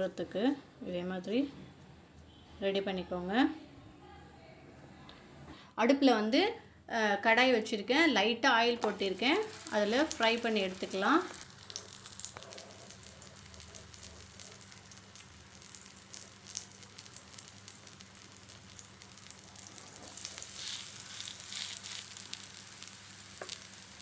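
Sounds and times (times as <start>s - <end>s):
food sizzling in a frying pan: 8.7s - 24.0s.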